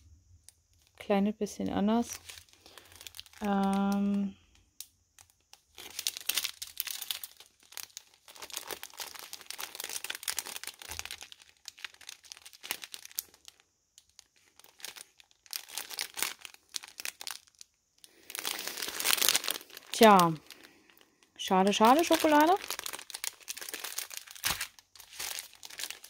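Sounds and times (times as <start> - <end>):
plastic bags crinkling: 0.0 - 1.1, 1.7 - 26.0.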